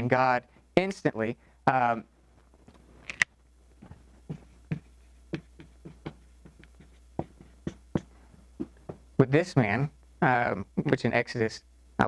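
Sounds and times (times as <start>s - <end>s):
marker writing on whiteboard: 3.8s - 9.1s.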